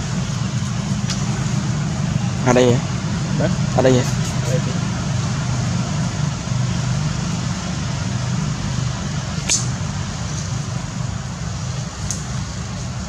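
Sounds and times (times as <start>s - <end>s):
low rumble and hiss: 0.0s - 13.0s
sharp click: 9.4s - 9.7s.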